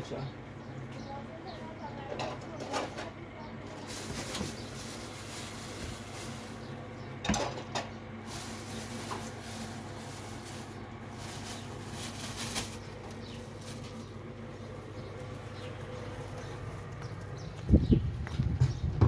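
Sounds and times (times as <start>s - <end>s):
steady low hum: 0.0s - 19.0s
plastic bag rustling: 3.6s - 7.0s, 8.2s - 17.0s.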